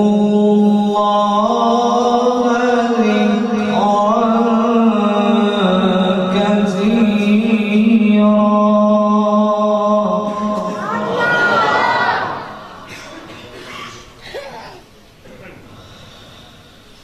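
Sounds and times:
man reciting melodically: 0.0s - 11.2s.

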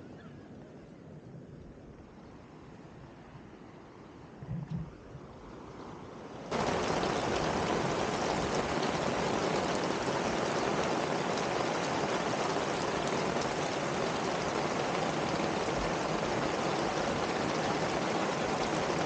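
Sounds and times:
water rushing: 4.3s - 19.0s.

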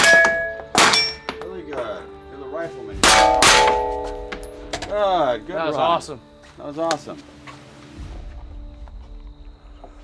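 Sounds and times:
steel plates ringing: 0.0s - 1.4s, 3.0s - 5.0s.

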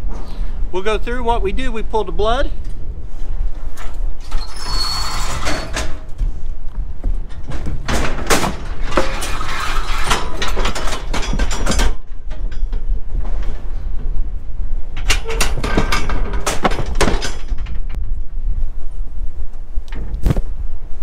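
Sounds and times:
low rumble: 0.0s - 21.0s
metal chute rattling and clanging: 3.8s - 6.2s, 7.1s - 13.9s, 14.8s - 18.2s
metal knocks: 15.0s - 18.1s.

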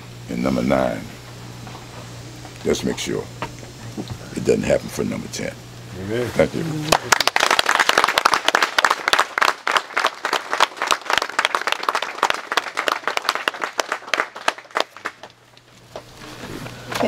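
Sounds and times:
audience applauding: 6.8s - 15.4s.

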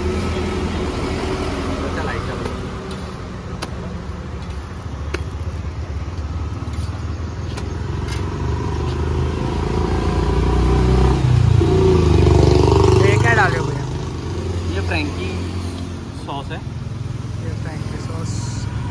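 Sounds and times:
vehicle engine rumbling: 0.0s - 18.9s.

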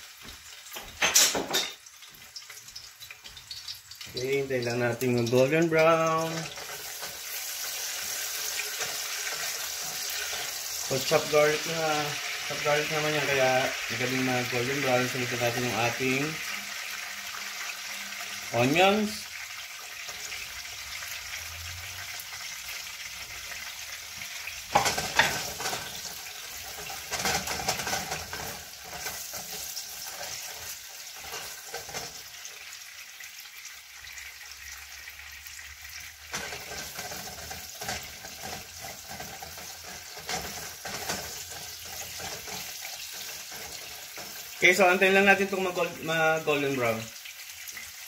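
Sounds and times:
onions sizzling in hot oil: 0.0s - 48.0s
spatula stirring and scraping: 6.2s - 11.1s, 24.8s - 32.6s, 36.3s - 44.8s.

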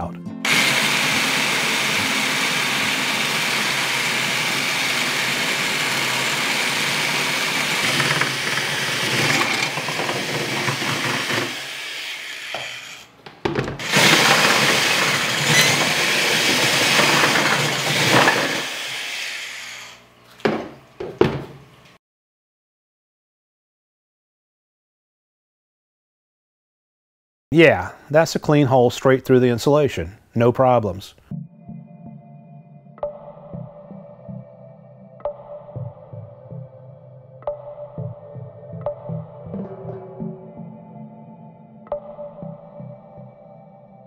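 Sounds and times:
electric drill boring through metal: 0.5s - 13.2s, 13.8s - 20.1s.

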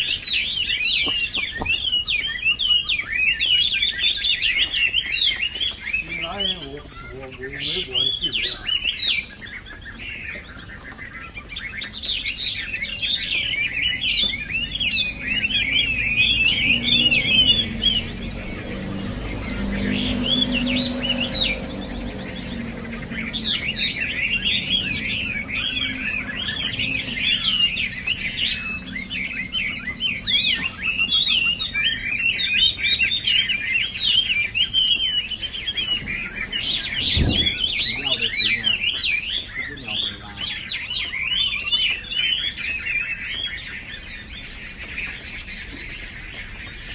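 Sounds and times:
bird singing whistled phrases: 0.0s - 10.0s.

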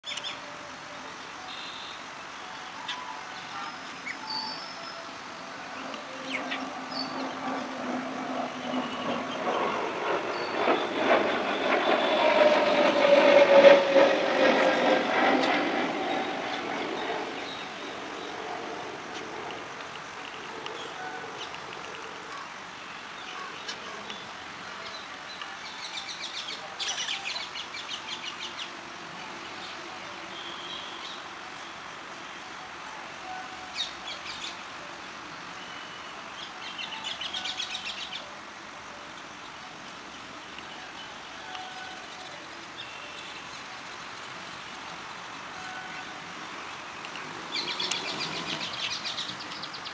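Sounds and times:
vehicle passing rumble: 5.7s - 21.9s.

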